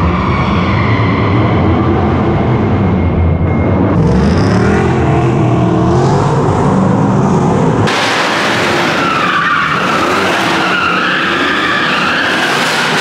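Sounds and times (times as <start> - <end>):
wavering high tyre squeal: 0.0 - 5.0, 8.6 - 13.0
car engines revving hard: 0.0 - 13.0.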